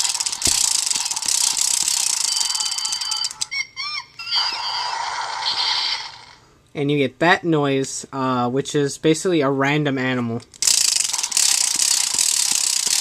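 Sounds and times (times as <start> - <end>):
electronic spinning sound: 0.0 - 3.4
rapid clicking of spinning disc: 0.0 - 3.4, 10.6 - 13.0
electronic animal cry: 2.6 - 6.4.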